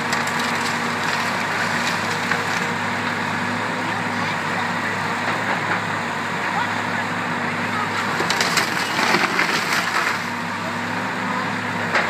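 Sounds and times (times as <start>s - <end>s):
wood cracking and snapping: 0.0s - 2.8s, 8.1s - 10.4s
diesel engine running: 0.0s - 12.0s.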